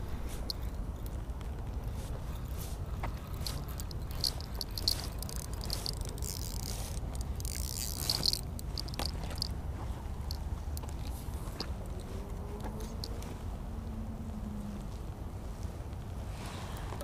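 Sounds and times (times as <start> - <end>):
fishing reel clicks: 3.2 - 9.5.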